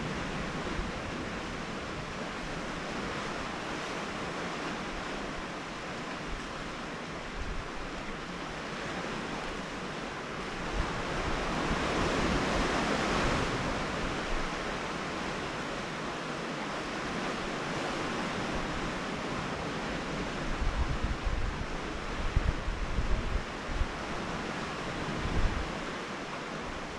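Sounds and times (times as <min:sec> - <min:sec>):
surf washing against rocks: 0:00.0 - 0:26.9
wind buffeting microphone: 0:18.1 - 0:26.0.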